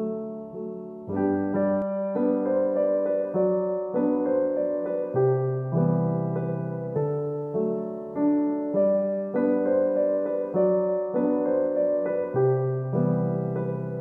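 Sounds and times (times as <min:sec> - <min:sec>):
soft slow piano music: 0:00.0 - 0:14.0.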